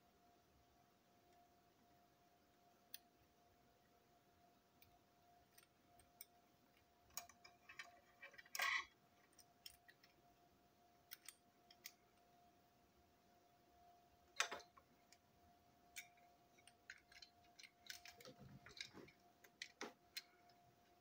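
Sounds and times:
small parts clicking on tabletop: 0:15.9 - 0:20.6.

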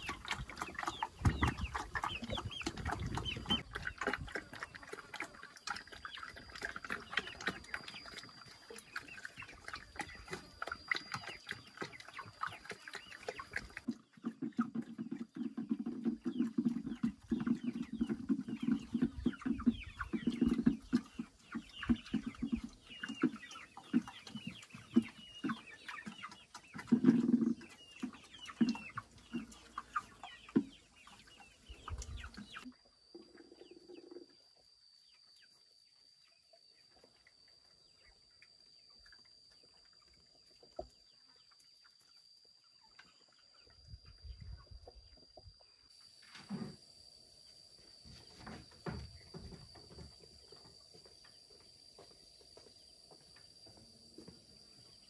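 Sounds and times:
chickens clucking: 0:00.0 - 0:35.6.

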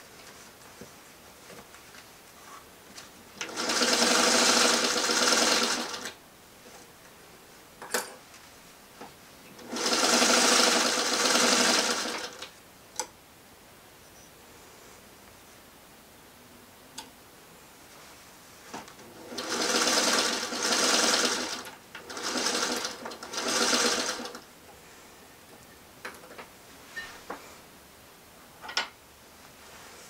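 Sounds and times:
sewing machine running: 0:03.4 - 0:06.2, 0:09.6 - 0:12.4, 0:19.0 - 0:24.4.

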